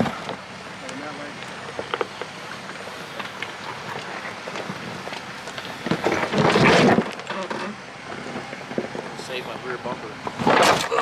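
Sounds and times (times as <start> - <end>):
car scraping against rock: 1.5 - 9.2, 10.2 - 11.0.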